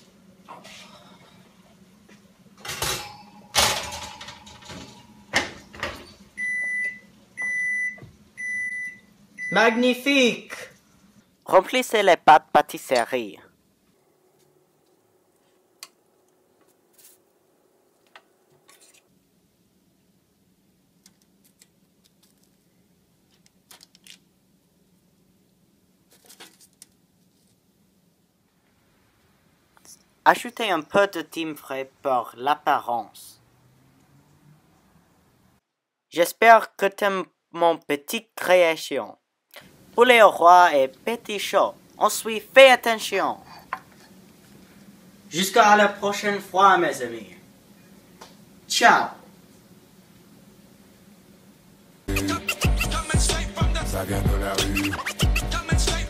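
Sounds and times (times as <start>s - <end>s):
faint steady hum: 0.0s - 36.2s, 38.5s - 52.2s
metal baking sheet clattering: 2.6s - 6.1s
appliance beeping: 2.6s - 9.9s.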